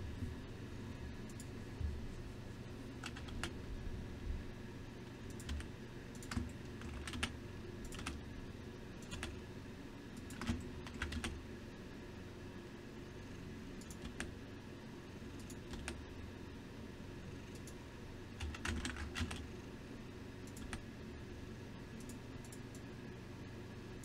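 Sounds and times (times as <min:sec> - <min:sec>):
low steady hum: 0:00.0 - 0:24.0
keyboard and mouse clicks: 0:03.0 - 0:03.5, 0:05.3 - 0:08.2, 0:09.0 - 0:09.4, 0:10.2 - 0:11.4, 0:13.8 - 0:14.3, 0:15.4 - 0:16.0, 0:17.5 - 0:17.8, 0:18.4 - 0:19.4, 0:20.4 - 0:20.8, 0:22.0 - 0:22.8.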